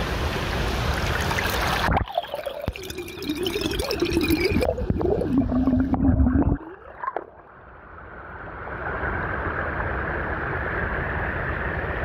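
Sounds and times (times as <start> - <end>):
muffled underwater gurgling: 1.8 - 7.2.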